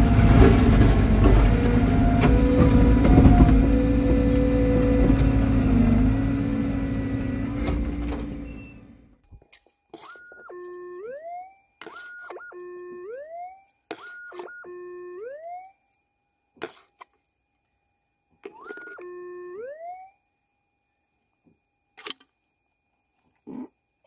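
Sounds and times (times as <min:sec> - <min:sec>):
metal detector gliding tone: 0:08.4 - 0:16.0, 0:18.4 - 0:20.2.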